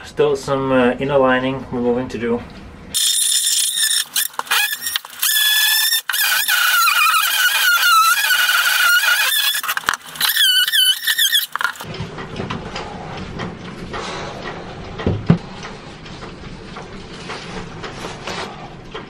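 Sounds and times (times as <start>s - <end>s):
power tool grinding fibreglass: 3.0s - 11.9s.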